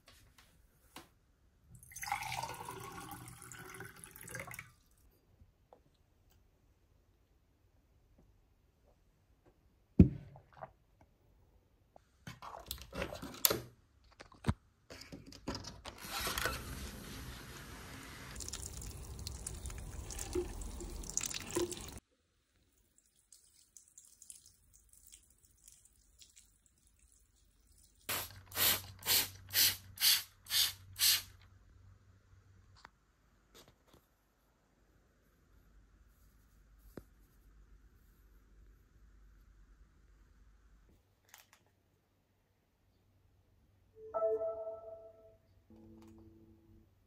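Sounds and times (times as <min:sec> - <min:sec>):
water pouring onto soil: 0:18.4 - 0:22.0, 0:23.0 - 0:28.2
short water sprays: 0:28.1 - 0:31.3.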